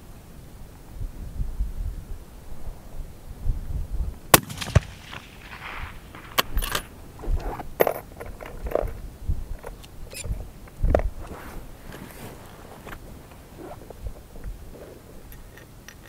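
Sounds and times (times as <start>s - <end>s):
wind rumbling on microphone: 0.0s - 16.0s
rifle shot: 4.3s - 7.0s.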